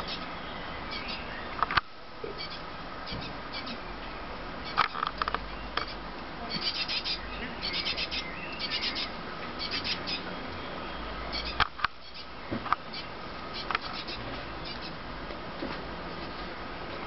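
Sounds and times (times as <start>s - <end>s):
fledgling bird begging calls: 5.8s - 10.3s.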